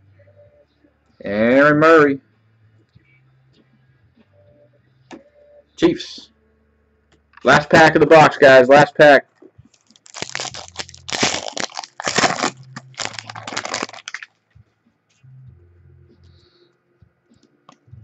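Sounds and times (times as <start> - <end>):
wrapper tearing and crinkling: 9.8 - 14.3.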